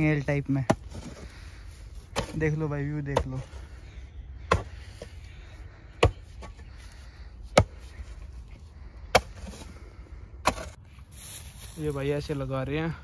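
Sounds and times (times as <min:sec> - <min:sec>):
digging tool chopping into soil: 0:02.1 - 0:03.4, 0:07.5 - 0:07.8, 0:09.1 - 0:09.6, 0:10.4 - 0:10.8.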